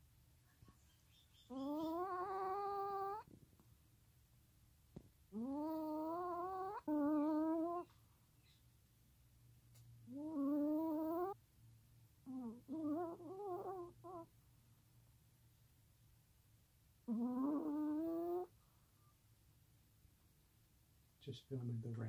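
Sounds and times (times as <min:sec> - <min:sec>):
dog whining: 0:01.2 - 0:03.3, 0:05.3 - 0:07.9, 0:10.0 - 0:11.4, 0:12.2 - 0:14.3, 0:17.0 - 0:18.6
dog whimpering: 0:01.4 - 0:03.3, 0:05.4 - 0:07.9, 0:10.1 - 0:11.4, 0:12.3 - 0:14.3, 0:17.1 - 0:18.5.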